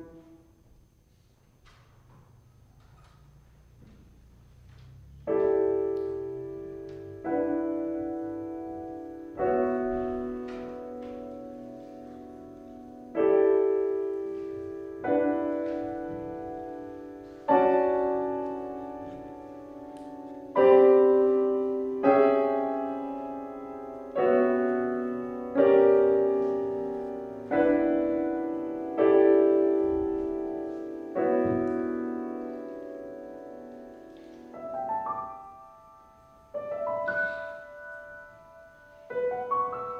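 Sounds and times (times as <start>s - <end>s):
grand piano playing slow chords: 0.0s - 39.9s.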